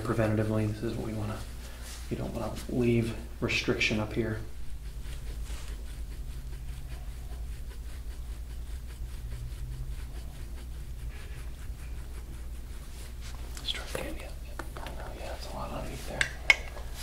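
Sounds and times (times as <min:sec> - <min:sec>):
steady low hum: 0:00.0 - 0:17.0
tool scraping skin: 0:00.0 - 0:17.0.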